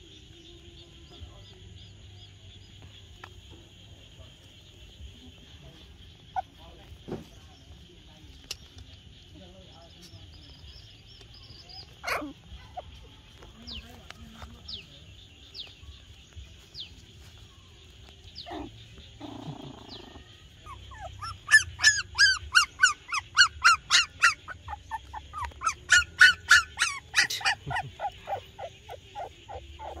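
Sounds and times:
young animal yelping: 0:11.9 - 0:13.0, 0:18.4 - 0:30.0.

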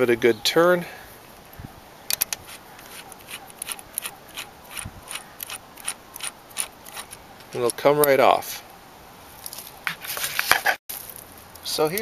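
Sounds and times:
small metal clicks and scrapes: 0:02.1 - 0:08.2.

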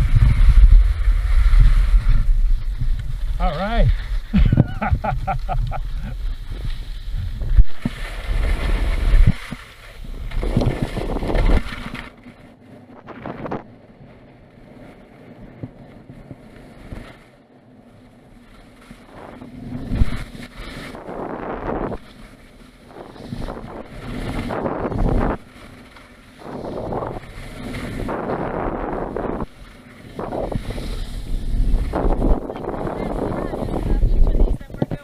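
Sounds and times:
wind buffeting microphone: 0:00.0 - 0:12.0, 0:19.0 - 0:35.0
skis scraping over snow: 0:00.0 - 0:35.0.

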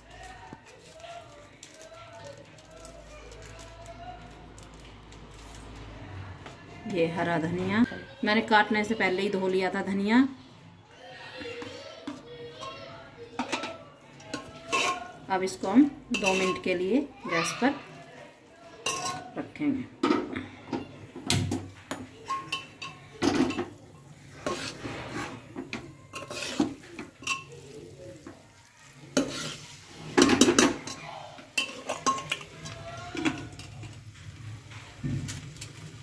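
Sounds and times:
metal spoon stirring in pot: 0:11.4 - 0:36.0.

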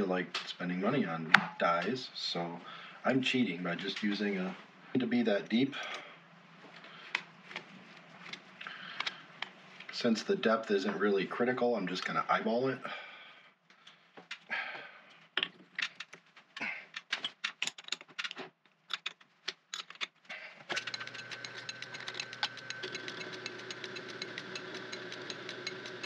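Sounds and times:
metallic clicks and knocks: 0:15.4 - 0:16.2, 0:16.9 - 0:26.0
metal lathe ticking and whining: 0:20.7 - 0:26.0.

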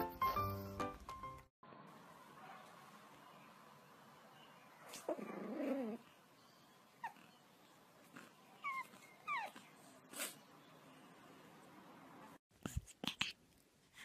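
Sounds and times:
puppy grumbling: 0:05.0 - 0:06.1
puppy whimpering: 0:05.0 - 0:06.1, 0:07.0 - 0:07.4, 0:08.6 - 0:09.7.

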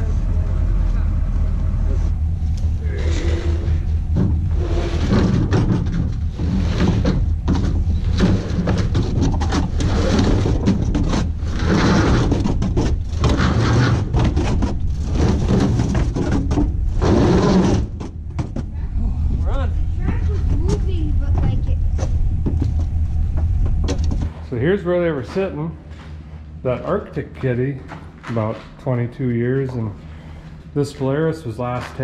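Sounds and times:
steady low rumble: 0:00.0 - 0:32.0
snowmobile scraping on metal ramp: 0:03.1 - 0:18.0.

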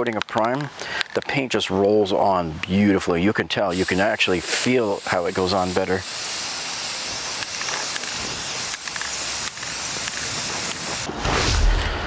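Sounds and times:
aerosol spray can hissing: 0:03.7 - 0:11.1.

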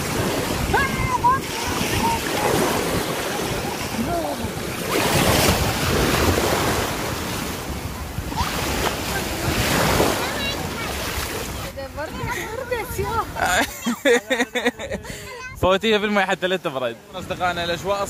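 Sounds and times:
wind buffeting microphone: 0:00.0 - 0:13.4
sea waves washing: 0:00.0 - 0:18.0.

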